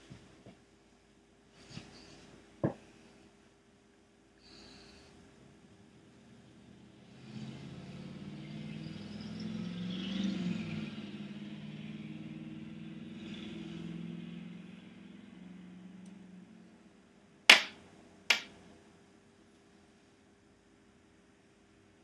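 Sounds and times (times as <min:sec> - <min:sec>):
sharp knocks: 0:17.5 - 0:18.5.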